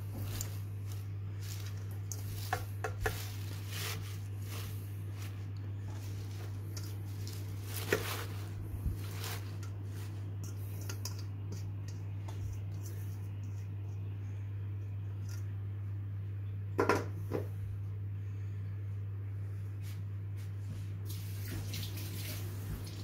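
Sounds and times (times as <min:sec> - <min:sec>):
spinach leaves rustling: 0:00.0 - 0:11.1
low hum: 0:00.0 - 0:21.0.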